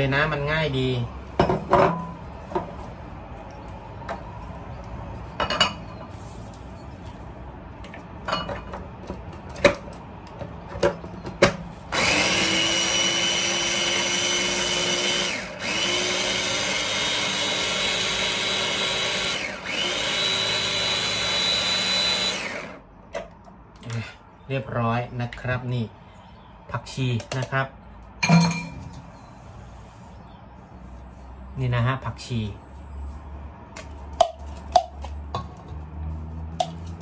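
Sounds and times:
mini chopper motor whine: 11.9 - 22.8.

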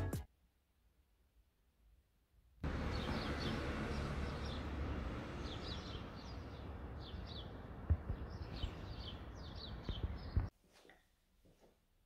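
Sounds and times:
small birds chirping: 2.6 - 10.5
low thumps: 7.8 - 8.5.

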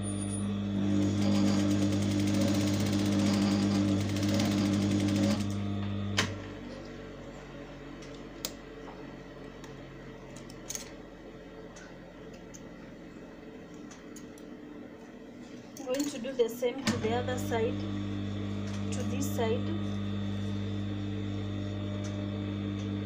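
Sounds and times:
sewing machine running: 0.0 - 6.5, 16.9 - 23.0.

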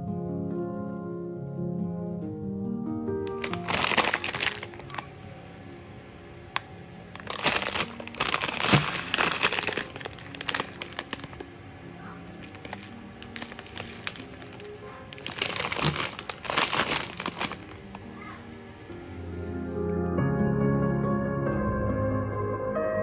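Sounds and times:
soft instrumental music: 0.0 - 23.0
plastic packet crinkling: 3.3 - 5.1, 6.5 - 11.5, 12.3 - 18.2.

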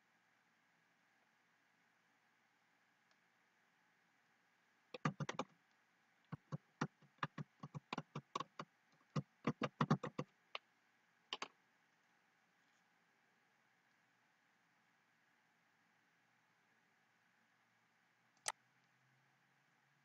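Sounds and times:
keyboard key clicks: 5.0 - 5.5, 6.3 - 8.6, 9.2 - 10.3, 11.3 - 11.5.

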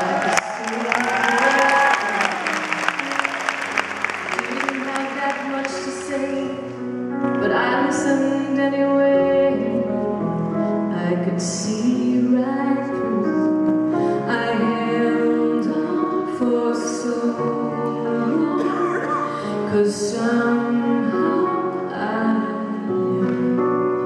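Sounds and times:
instrumental accompaniment: 0.0 - 24.0
woman singing into microphone: 4.3 - 10.3, 10.9 - 23.6.

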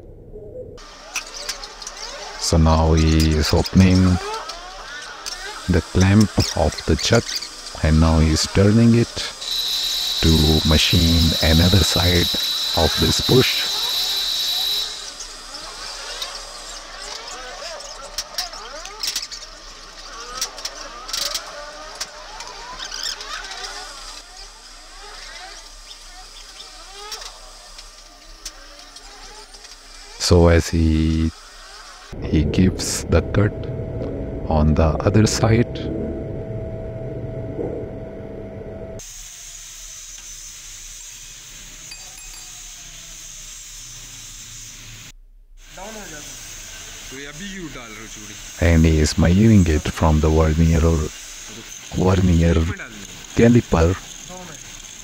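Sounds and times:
engine noise with gliding tones: 0.0 - 39.1
steady hiss: 0.8 - 35.8, 39.0 - 55.0
lathe machine hum: 8.5 - 15.2, 31.4 - 39.0.

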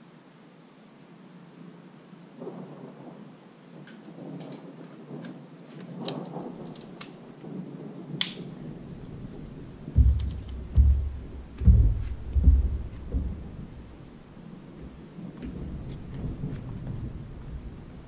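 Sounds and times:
thunder rumbling: 6.0 - 18.0.

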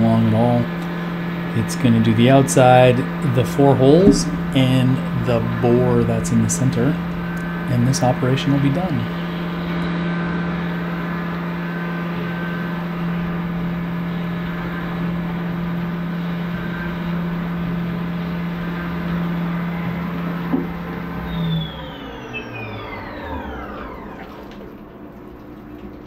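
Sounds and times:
mill spindle humming: 0.0 - 26.0
coolant spraying and splashing: 24.0 - 26.0.

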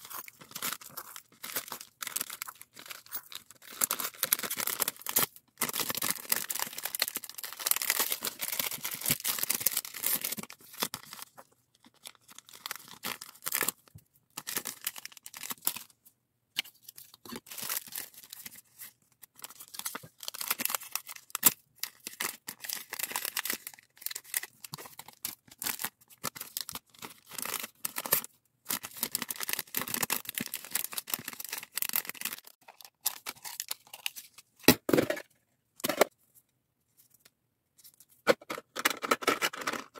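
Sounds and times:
plastic bags crinkling: 0.0 - 11.2.

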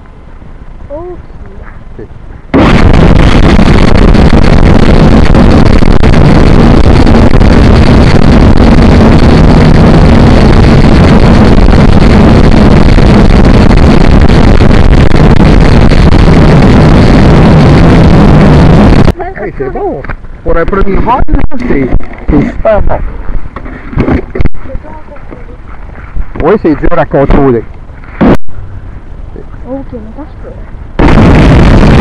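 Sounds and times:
drone propellers buzzing: 2.5 - 19.1.

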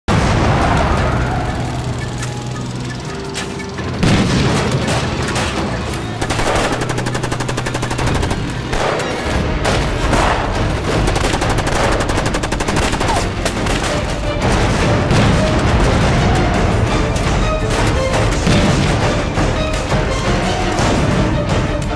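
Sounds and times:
motorcycle engines humming: 0.1 - 21.7
machine-gun and rifle fire: 3.8 - 16.6.

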